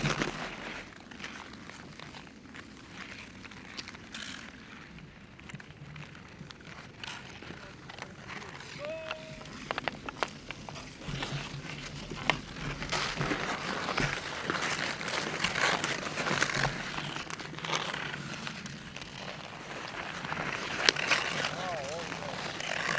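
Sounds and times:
skate blades scraping ice: 0.0s - 22.9s
hockey sticks hitting puck: 7.1s - 17.8s.

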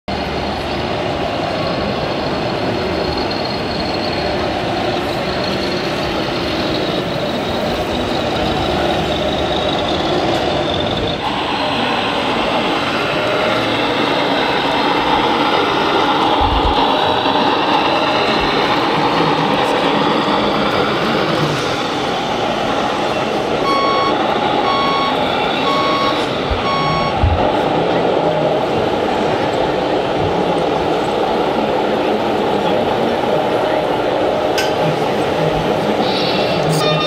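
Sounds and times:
crowded hall din: 0.1s - 37.0s
model truck engine: 5.0s - 22.4s
people talking: 22.8s - 37.0s.

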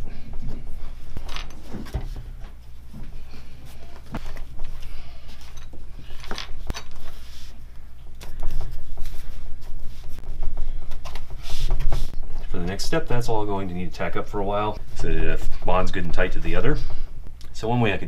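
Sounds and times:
steady low hum: 0.0s - 18.0s
cloth and foam rustling: 6.5s - 12.2s.

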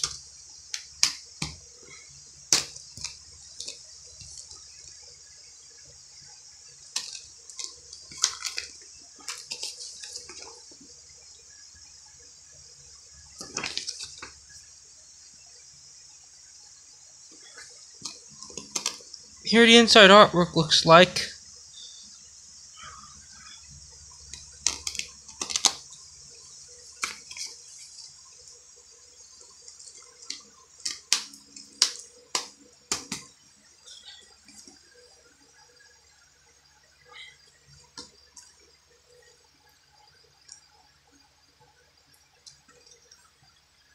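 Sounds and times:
steady hiss: 0.0s - 43.9s
paper crinkling: 6.9s - 10.7s, 13.4s - 14.4s, 24.6s - 25.8s, 27.0s - 28.1s.

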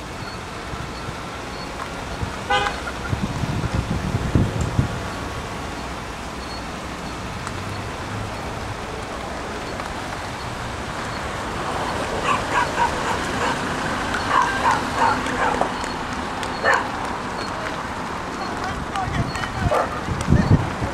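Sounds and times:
slow-moving car noise: 0.0s - 20.9s
dog barking: 12.2s - 13.6s, 14.2s - 15.7s, 16.6s - 17.0s, 19.6s - 20.0s.

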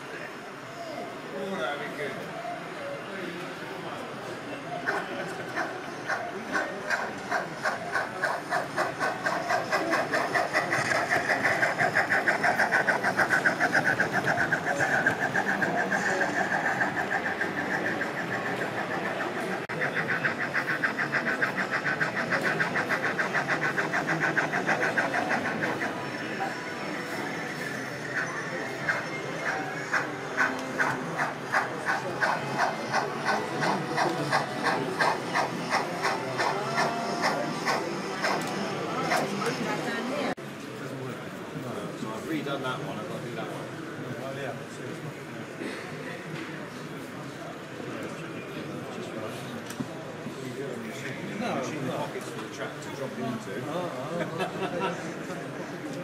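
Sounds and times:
model steam locomotive chuffing: 3.5s - 40.1s.

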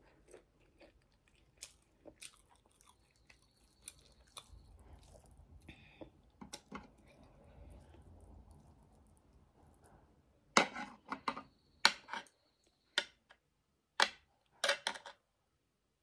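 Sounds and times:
faint chewing: 0.0s - 10.2s.

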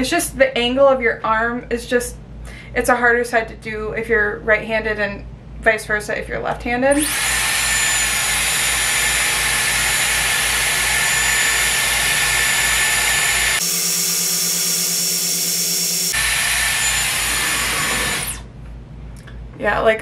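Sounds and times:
hair styler air rush and motor whine: 7.0s - 18.5s.

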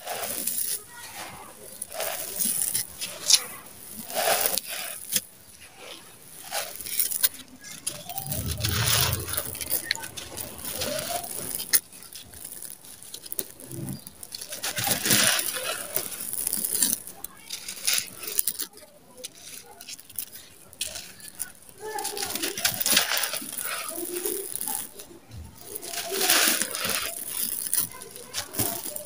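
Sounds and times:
grains pattering down: 0.0s - 29.0s
sand-cement crushed by hand: 25.6s - 29.0s.

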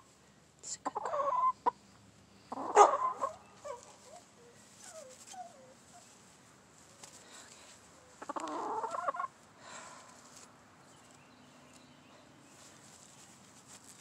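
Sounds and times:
chickens clucking: 0.8s - 5.5s, 7.9s - 9.4s
chicken squawk: 2.5s - 4.2s, 8.2s - 9.3s.

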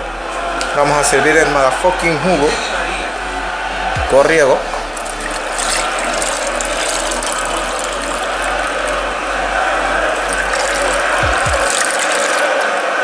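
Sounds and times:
juice pouring into glass mug: 4.8s - 13.0s.

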